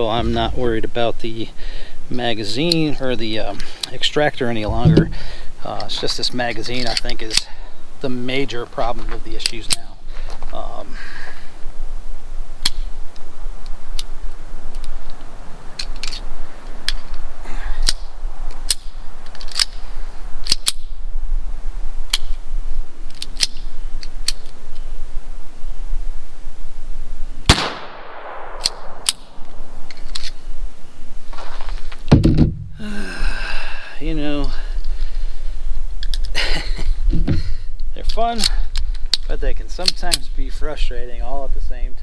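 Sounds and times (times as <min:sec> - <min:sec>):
gun handling noise: 0:12.6 - 0:17.2, 0:17.8 - 0:21.0, 0:22.1 - 0:22.4, 0:23.0 - 0:24.9, 0:27.5 - 0:30.5, 0:37.1 - 0:40.2
pistol gunshots: 0:27.5 - 0:29.4.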